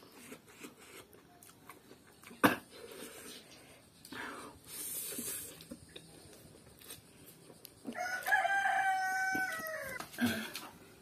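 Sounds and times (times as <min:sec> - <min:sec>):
rooster crowing: 0:07.9 - 0:10.1.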